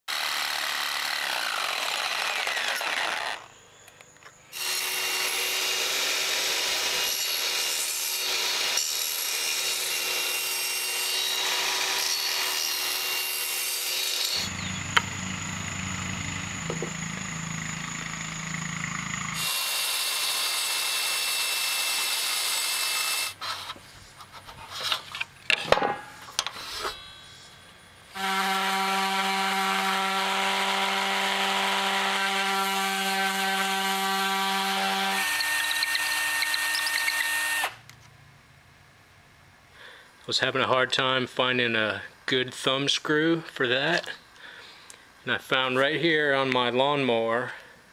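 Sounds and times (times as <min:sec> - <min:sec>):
jigsaw cutting wood: 0:00.1 - 0:03.5, 0:04.6 - 0:23.4, 0:28.2 - 0:37.8
power tool motor whining: 0:00.1 - 0:03.5, 0:11.3 - 0:23.4, 0:28.1 - 0:37.8.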